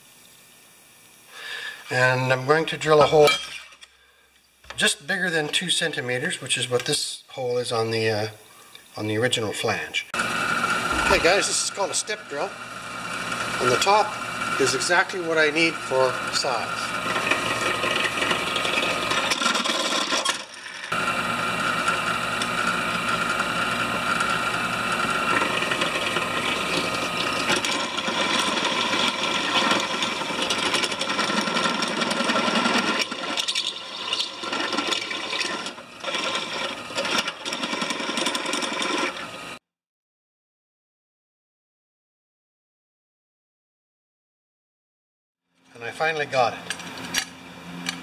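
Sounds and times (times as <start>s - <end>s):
drill bit grinding through metal: 10.2s - 39.5s
drill press motor whine: 10.2s - 39.6s.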